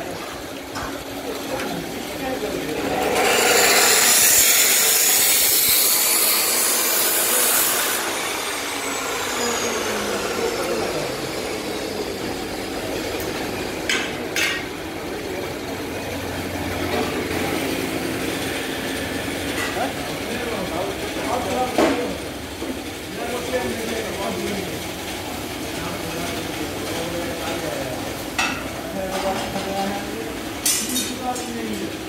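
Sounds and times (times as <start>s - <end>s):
workshop clatter: 0.0s - 32.0s
electric grinder on metal: 2.6s - 14.3s.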